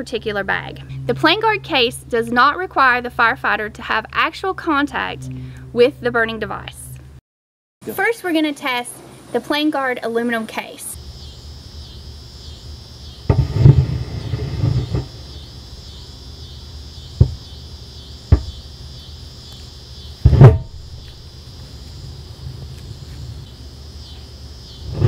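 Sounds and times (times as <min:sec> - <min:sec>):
sharp knocks: 0:13.3 - 0:15.2, 0:17.2 - 0:17.5, 0:18.3 - 0:18.6, 0:20.2 - 0:21.0.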